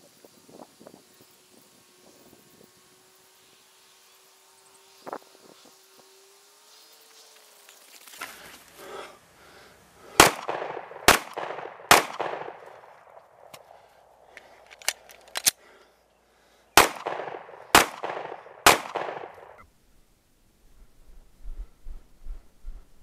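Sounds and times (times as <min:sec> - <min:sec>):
pistol shots with echo: 0:10.2 - 0:12.7, 0:16.8 - 0:19.6
metallic clicks: 0:14.4 - 0:15.6.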